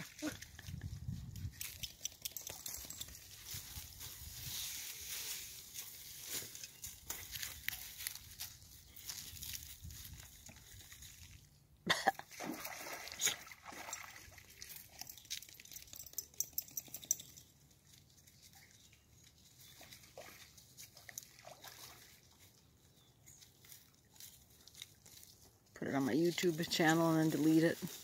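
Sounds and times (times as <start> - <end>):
dog splashing through water: 12.3 - 15.2, 19.8 - 22.5.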